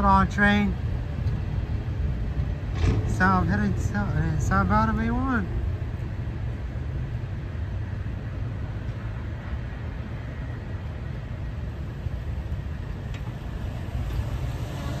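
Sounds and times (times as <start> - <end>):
road traffic: 0.0 - 15.0
freight train rolling past: 11.2 - 15.0.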